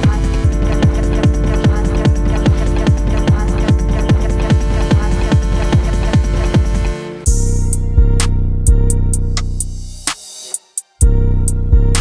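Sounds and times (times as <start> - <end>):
kick drum: 0.0 - 8.9.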